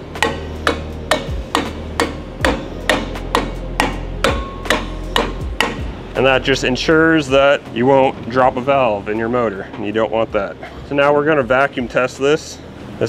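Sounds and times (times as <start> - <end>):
rubber mallet tapping metal: 0.1 - 6.0.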